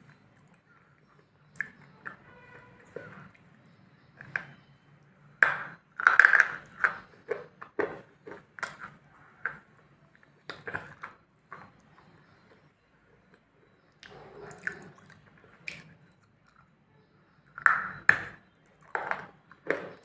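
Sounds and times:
crunchy biting and chewing: 14.0s - 16.7s.

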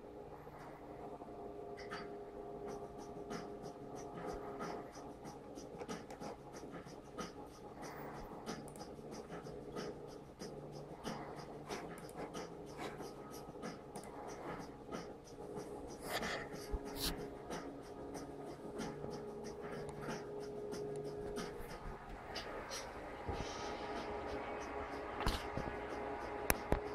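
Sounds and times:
faint steady hum: 0.0s - 26.9s.

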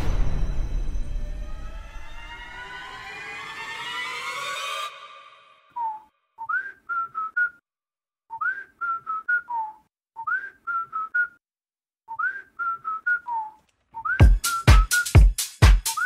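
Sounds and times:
whistled tune: 4.9s - 7.7s, 8.3s - 11.4s, 12.1s - 16.0s.

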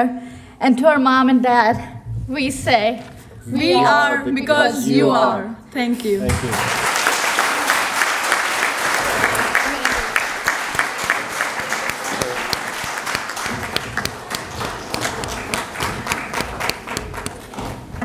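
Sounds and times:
audience applauding: 6.4s - 17.6s.

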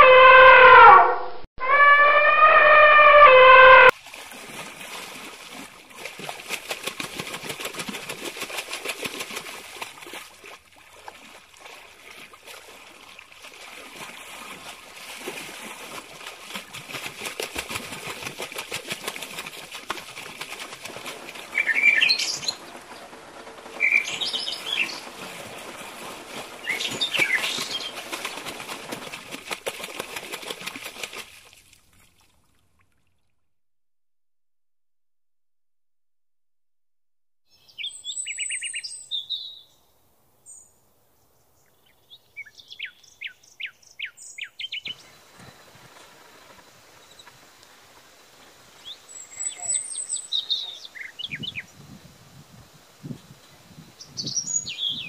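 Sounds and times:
elephant trumpeting: 0.0s - 3.9s
steady outdoor hiss: 4.1s - 32.0s, 37.5s - 55.0s
birds chirping: 21.5s - 25.2s, 26.6s - 28.4s, 48.8s - 51.7s.

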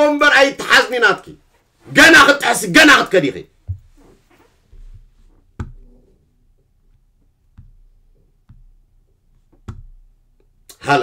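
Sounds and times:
steady low hum: 3.5s - 10.7s.

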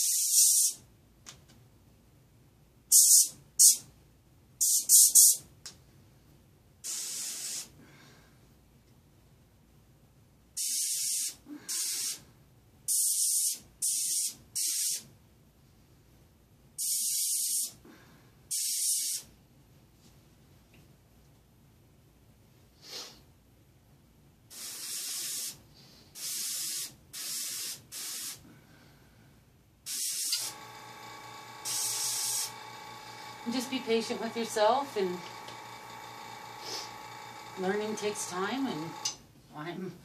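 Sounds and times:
airbrush spraying hiss: 24.5s - 25.6s, 26.2s - 28.4s, 31.6s - 32.5s, 36.6s - 37.0s
steady hum: 30.3s - 39.2s.

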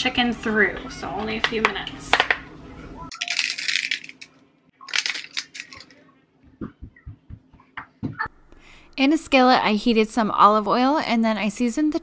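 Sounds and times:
spice shaker rattling: 3.1s - 4.3s, 4.9s - 6.0s
soft thumps: 6.4s - 8.3s.

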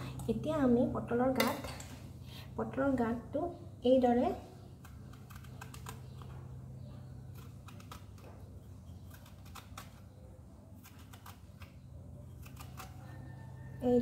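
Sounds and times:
peeler scraping gourd: 10.8s - 13.3s.

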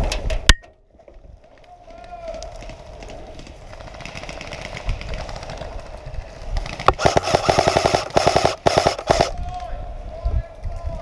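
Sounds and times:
airsoft rifle automatic fire: 6.6s - 9.4s.

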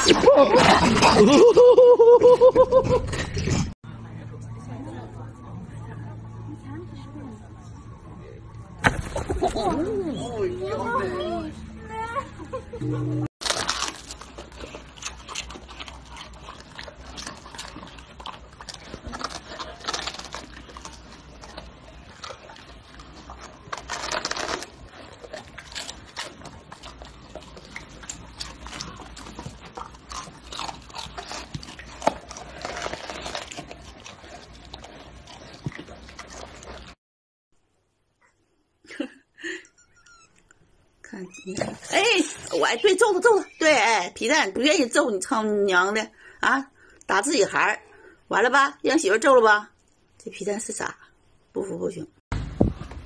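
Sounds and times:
dogs crunching cabbage leaves: 0.0s - 1.6s, 13.4s - 37.0s.

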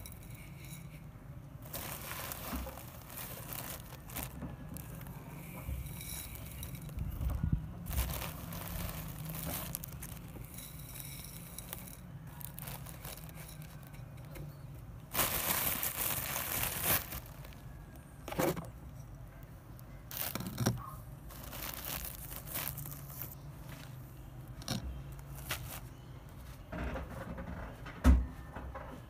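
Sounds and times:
plastic bag crinkling: 1.6s - 18.0s, 20.1s - 25.9s
seed pouring into a dish: 7.9s - 13.6s.

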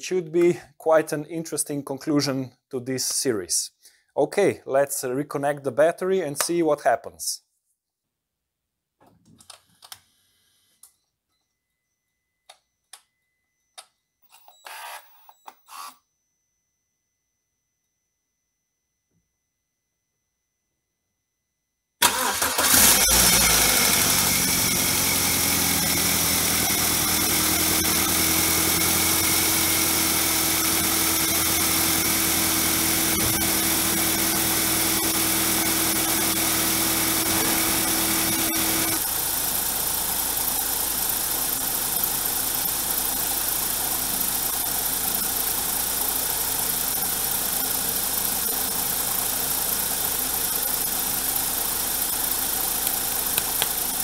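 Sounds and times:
car engine starting: 22.0s - 54.0s
engine idling: 22.0s - 54.0s.

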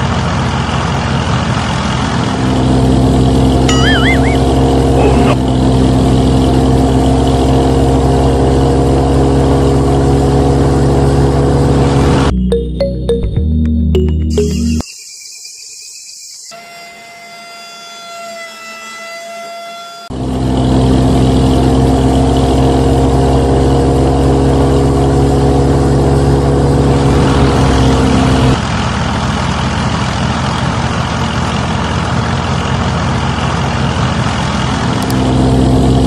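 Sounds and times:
high whine: 3.7s - 5.4s.

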